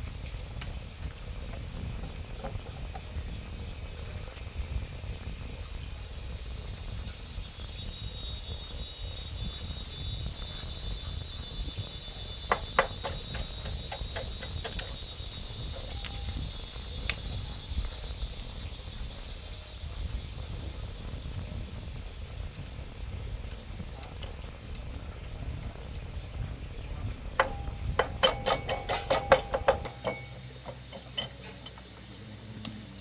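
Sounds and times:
insect trilling: 0:04.7 - 0:22.3
metal tools clinking: 0:27.4 - 0:31.9.

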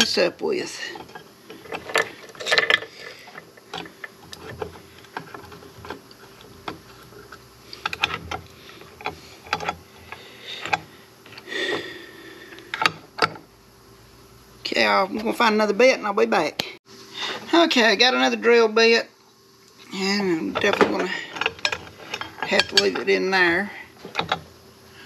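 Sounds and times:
metal tools clicking and clinking: 0:00.7 - 0:08.4, 0:09.0 - 0:11.4, 0:20.5 - 0:23.4.

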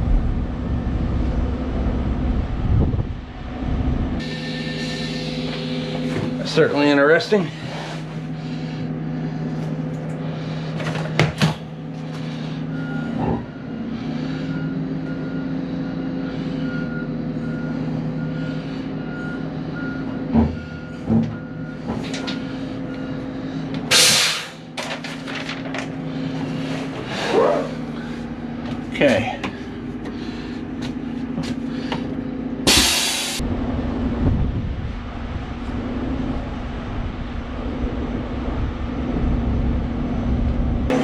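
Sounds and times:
diesel engine running: 0:00.0 - 0:41.0
air brakes hissing: 0:04.2 - 0:06.5, 0:20.7 - 0:24.7, 0:32.7 - 0:33.4
backup alarm beeping: 0:12.6 - 0:23.2.

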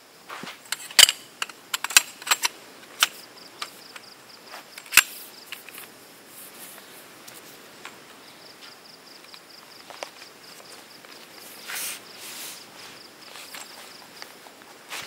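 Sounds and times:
insect chirping: 0:00.0 - 0:15.0
camping gear clicking and knocking: 0:00.4 - 0:06.0, 0:13.2 - 0:15.0.

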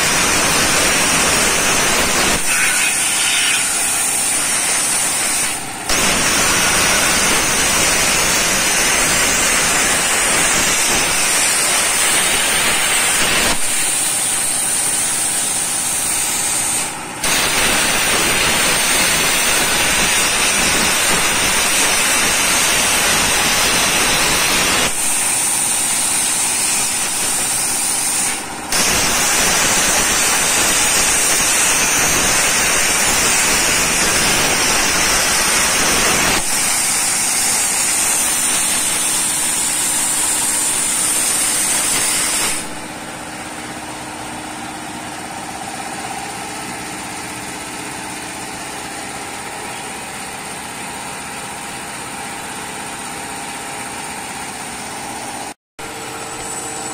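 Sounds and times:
machine hum: 0:00.0 - 0:41.8
plasma torch hissing: 0:00.0 - 0:43.2.

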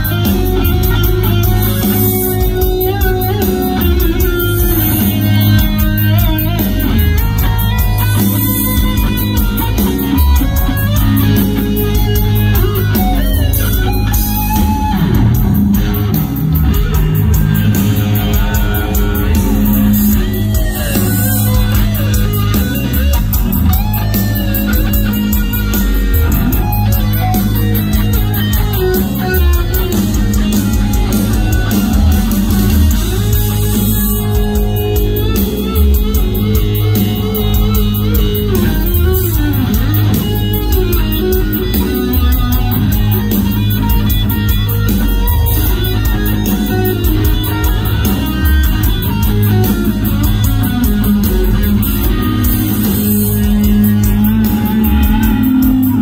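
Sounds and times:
bass guitar: 0:00.0 - 0:56.0
drums: 0:00.0 - 0:56.0
electric guitar lead lines: 0:00.0 - 0:56.0.

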